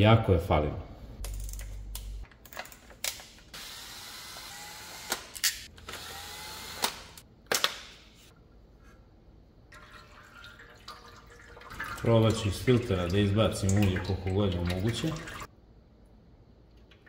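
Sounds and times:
cordless drill running: 3.6s - 7.2s.

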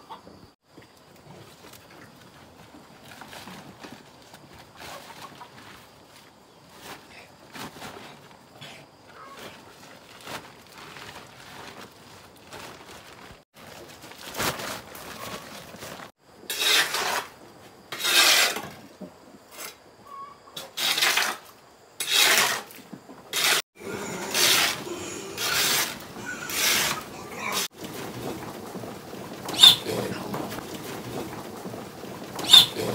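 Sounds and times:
plastic sack rustling: 9.3s - 16.2s, 25.6s - 32.9s
shovel scraping across floor: 14.4s - 18.9s, 20.6s - 28.2s.

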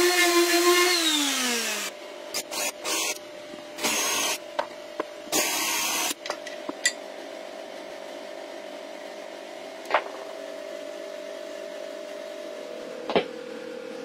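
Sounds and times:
electric drill boring into wood: 0.0s - 3.2s, 3.8s - 4.4s, 5.4s - 6.2s.

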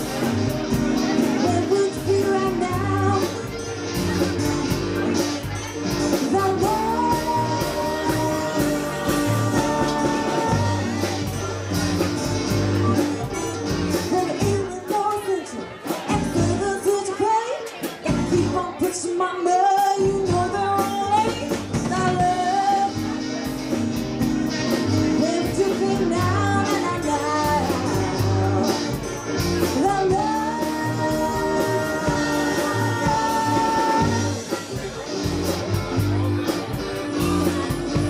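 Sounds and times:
live rock band playing: 0.0s - 38.0s
woman singing: 1.0s - 3.6s, 5.9s - 11.4s, 14.0s - 23.2s, 25.1s - 34.5s.

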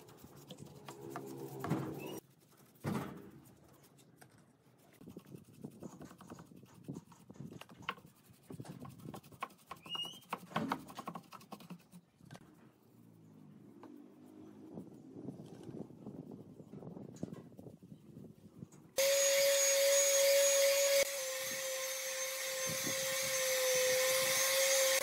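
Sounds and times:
paintbrush scratching on wood: 0.0s - 16.6s
brush scraping wood: 0.0s - 16.9s.

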